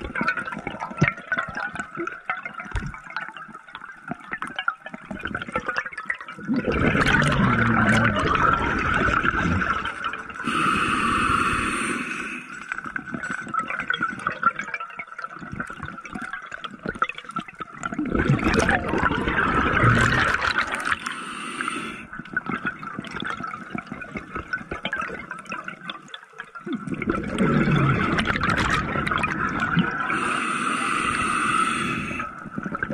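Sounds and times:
exhaled bubbles rushing: 0:05.0 - 0:32.9
regulator hiss on inhalation: 0:10.4 - 0:12.7, 0:21.0 - 0:22.1, 0:30.1 - 0:32.4.

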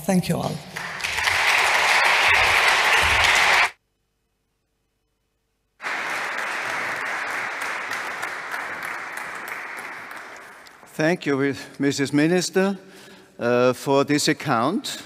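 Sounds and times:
audience applauding: 0:00.8 - 0:03.8, 0:05.8 - 0:11.0.

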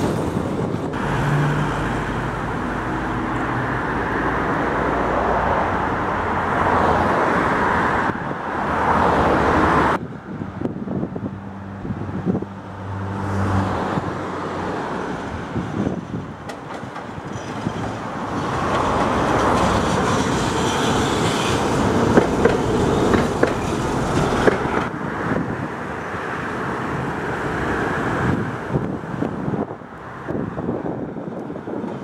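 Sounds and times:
tram wheels on rails: 0:14.3 - 0:30.6, 0:31.2 - 0:32.0
clicks over rail joints: 0:16.4 - 0:20.5.

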